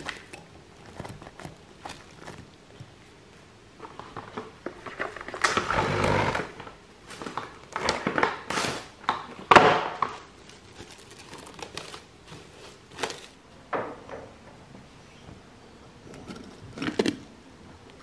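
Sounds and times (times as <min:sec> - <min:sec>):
plastic wrap crinkling: 0:00.0 - 0:03.2, 0:07.0 - 0:13.4.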